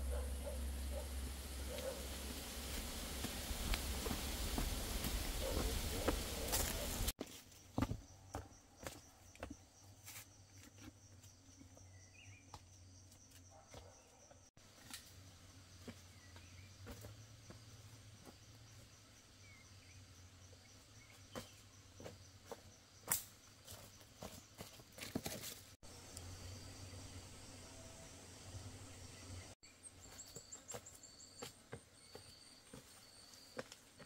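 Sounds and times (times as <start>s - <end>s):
insect drone: 0.0s - 7.1s, 25.8s - 33.7s
footsteps through leaves: 1.6s - 7.1s.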